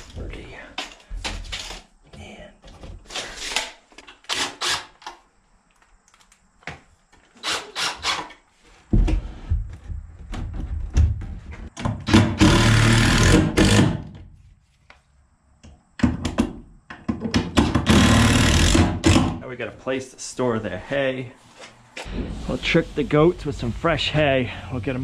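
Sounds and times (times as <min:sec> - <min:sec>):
drill driving screws into wood: 0:04.3 - 0:05.1, 0:07.4 - 0:08.4, 0:12.0 - 0:14.0, 0:17.7 - 0:19.4.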